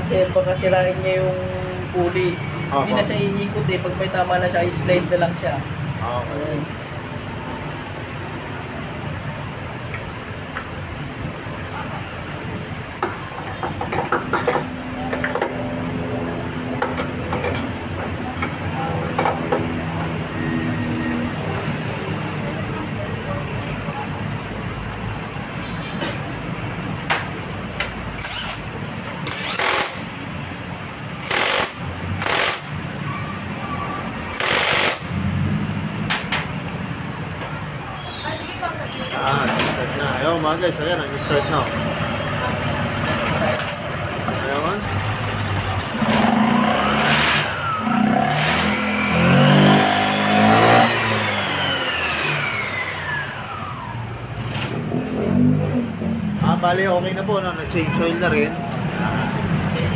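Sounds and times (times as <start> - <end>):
impact wrench hammering: 28.2 - 30.1, 31.2 - 32.8, 34.3 - 35.2
scooter engine revving: 28.2 - 30.2, 41.0 - 56.7
drive belt and pulleys whining: 39.2 - 54.8.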